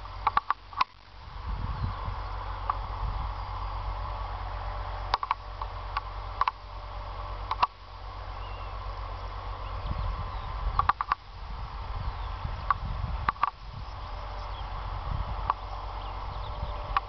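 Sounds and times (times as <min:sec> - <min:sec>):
wind rumbling on microphone: 0:00.0 - 0:17.0
sharp metallic clicks: 0:00.2 - 0:01.1, 0:05.1 - 0:06.7, 0:07.4 - 0:07.8, 0:10.8 - 0:11.3, 0:12.7 - 0:13.6.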